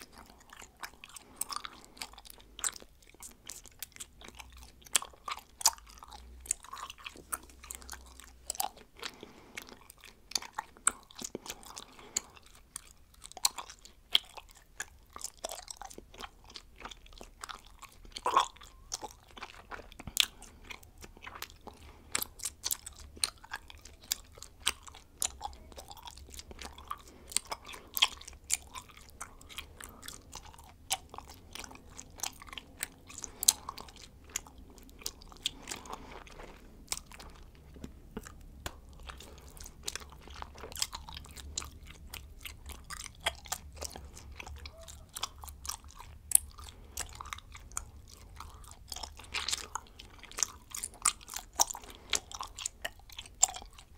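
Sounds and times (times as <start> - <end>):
person chewing bubblegum: 0.0 - 53.9.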